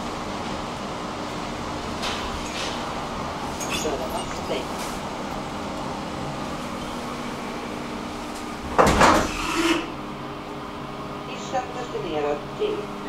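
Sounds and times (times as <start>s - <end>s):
elevator drive hum: 0.0s - 13.0s
elevator clunk and rattle: 1.8s - 5.8s, 8.1s - 10.0s.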